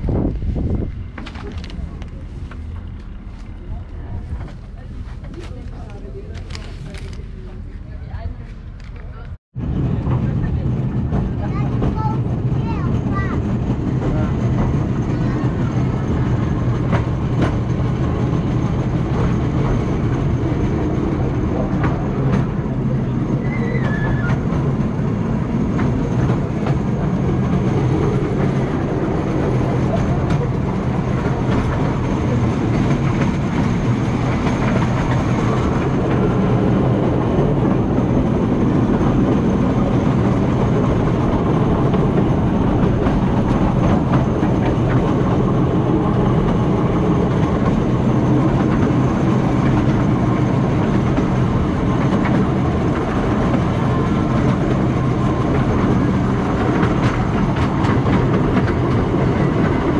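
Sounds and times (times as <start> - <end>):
train wheels rumbling on track: 0.0 - 59.9
rails clicking and clattering: 10.0 - 59.9.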